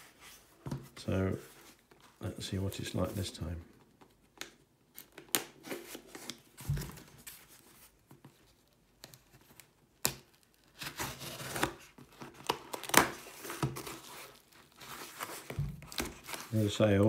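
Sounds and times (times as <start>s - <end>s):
packing tape ripping and crinkling: 9.6s - 16.6s.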